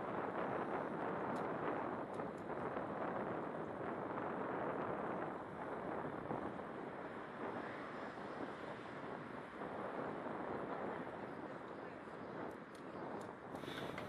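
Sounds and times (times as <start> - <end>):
wind on microphone: 0.0 - 14.0
city traffic: 6.5 - 14.0.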